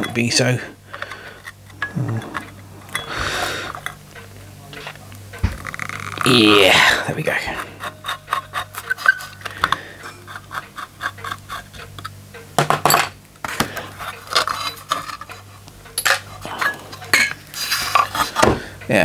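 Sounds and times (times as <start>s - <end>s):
metal parts clattering: 11.9s - 18.3s.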